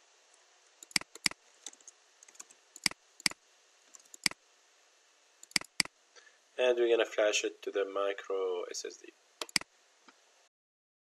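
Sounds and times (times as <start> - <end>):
computer mouse clicking: 0.8 - 4.4, 5.4 - 5.9, 9.4 - 9.7.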